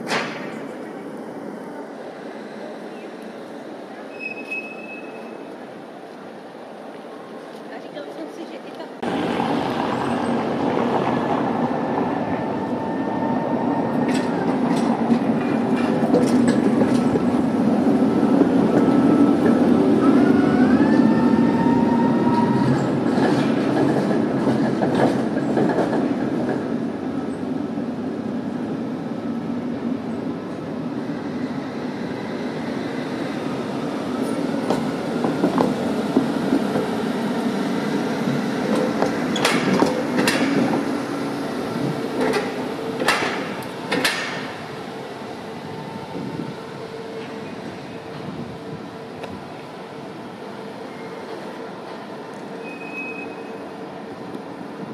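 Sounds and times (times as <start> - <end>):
tram rumbling over track: 0.0 - 54.9
clicks and clatter at rail joints: 14.0 - 17.4, 22.7 - 26.7, 38.7 - 40.9, 42.2 - 44.6
wheels squealing: 52.6 - 53.6.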